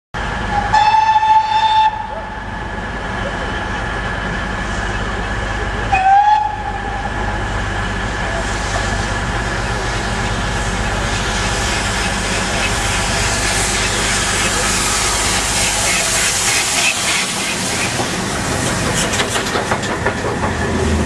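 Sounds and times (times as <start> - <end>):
train rumble: 0.2 - 21.0
steam locomotive whistle: 0.5 - 2.4, 5.9 - 7.1.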